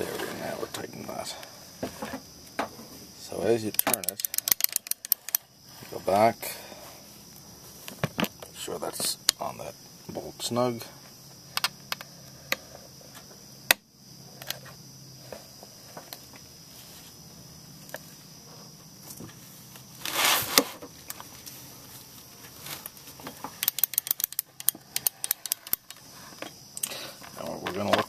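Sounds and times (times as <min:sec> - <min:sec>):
scraping rustle: 0:00.0 - 0:03.4, 0:14.5 - 0:17.4, 0:18.0 - 0:23.6
ratchet clicks: 0:03.6 - 0:05.4, 0:23.6 - 0:26.0
sharp torque wrench click: 0:23.6 - 0:25.9.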